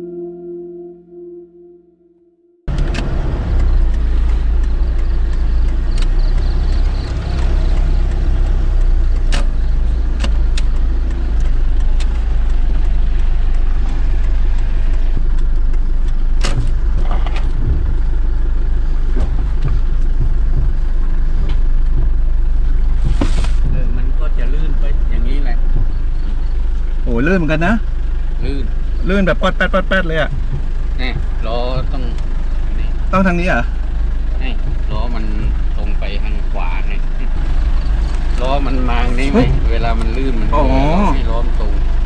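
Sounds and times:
car engine and tyres rumbling: 0:02.6 - 0:42.0
sharp knocks: 0:19.0 - 0:24.0.

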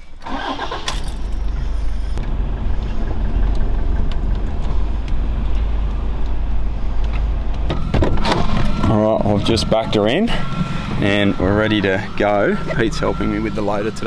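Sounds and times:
vehicle engine and tyres rumbling: 0:00.0 - 0:14.0.

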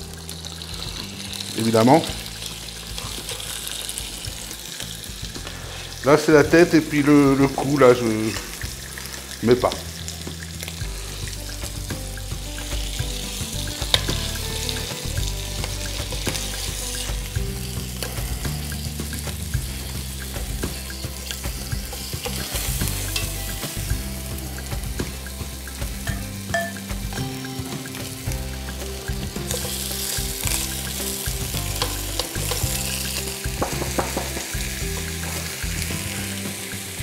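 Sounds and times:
meat sizzling in oil: 0:00.0 - 0:37.0
metal tongs clicking on pot: 0:26.0 - 0:26.9, 0:30.8 - 0:35.6.

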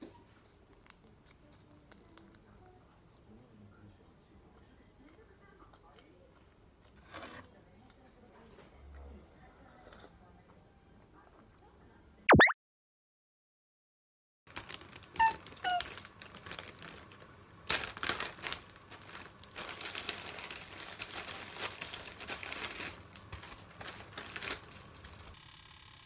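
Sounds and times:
plastic bag crinkling: 0:14.5 - 0:25.4.

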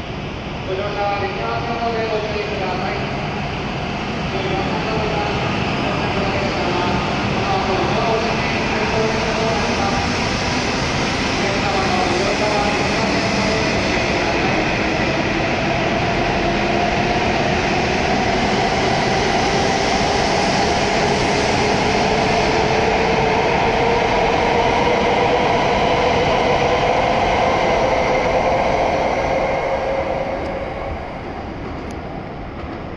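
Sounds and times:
train running rush: 0:00.0 - 0:32.9.

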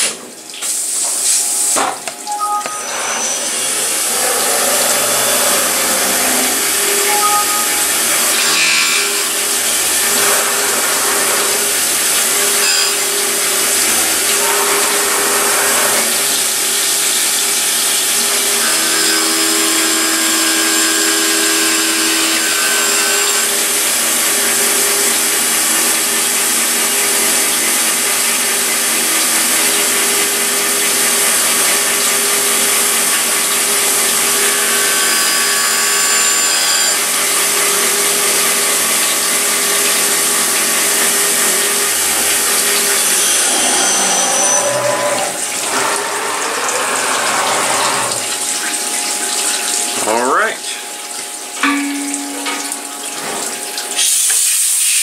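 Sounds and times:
coolant streaming: 0:00.0 - 0:55.0
motor whine: 0:02.6 - 0:17.0, 0:30.9 - 0:49.3
coolant spray hissing: 0:54.0 - 0:55.0.

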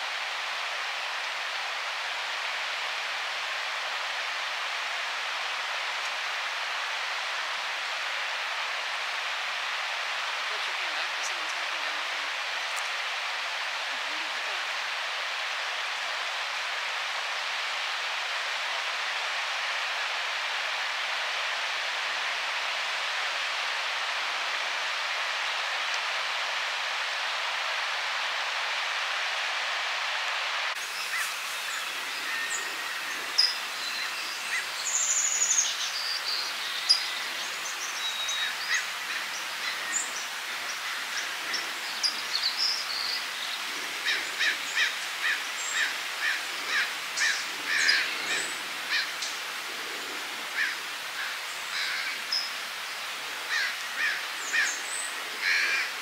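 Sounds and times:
steady hiss: 0:00.0 - 0:56.0
wild birds chirping and whistling: 0:30.8 - 0:49.4, 0:53.5 - 0:55.9.

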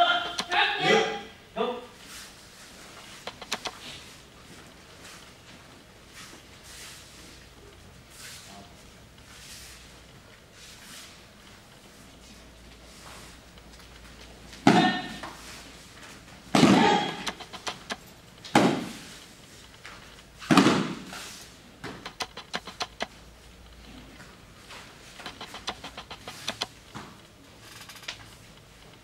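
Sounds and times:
person yelling sharply: 0:00.0 - 0:01.8, 0:14.6 - 0:15.3, 0:16.6 - 0:17.3.

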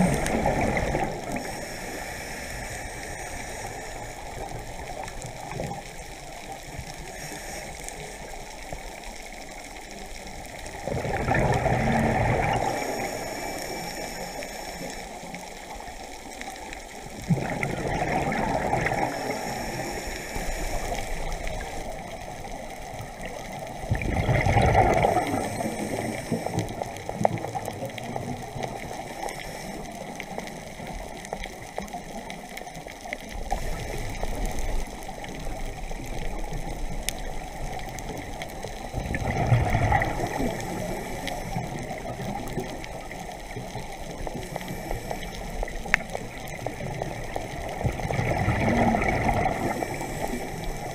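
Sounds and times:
diver's exhaled bubbles: 0:00.0 - 0:01.4, 0:10.8 - 0:13.0, 0:17.3 - 0:19.4, 0:23.9 - 0:26.2, 0:38.9 - 0:40.8, 0:47.0 - 0:50.9
steady underwater rush: 0:00.0 - 0:50.9.

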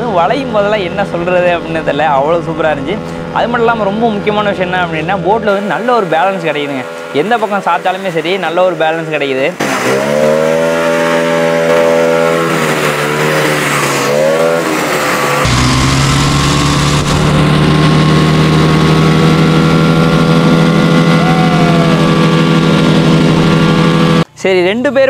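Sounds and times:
motorcycle engine droning: 0:00.0 - 0:24.4.

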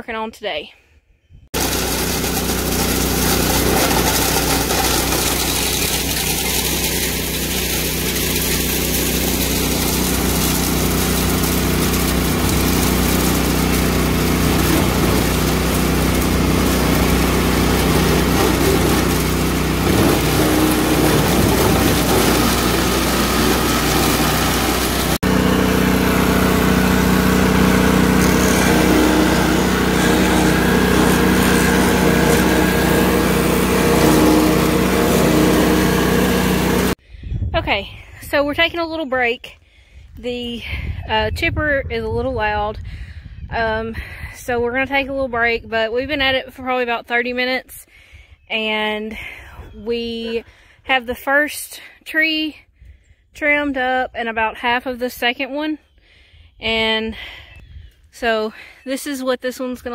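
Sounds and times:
wood chipper chipping limbs: 0:01.6 - 0:37.0.

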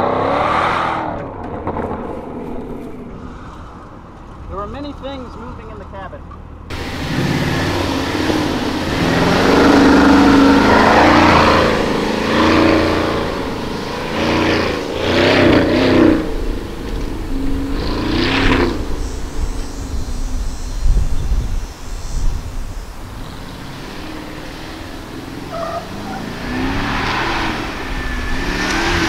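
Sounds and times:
engine revving: 0:00.0 - 0:03.4, 0:06.7 - 0:21.1, 0:23.0 - 0:29.0
tyres spraying sand and dirt: 0:06.7 - 0:29.0.

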